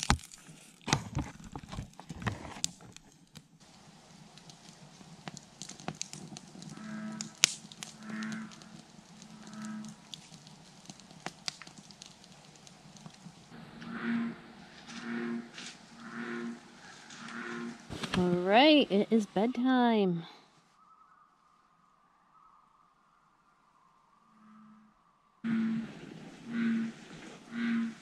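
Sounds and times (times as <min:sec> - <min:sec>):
bullfrog croaking: 0:06.7 - 0:10.0, 0:13.5 - 0:17.9, 0:24.2 - 0:28.0.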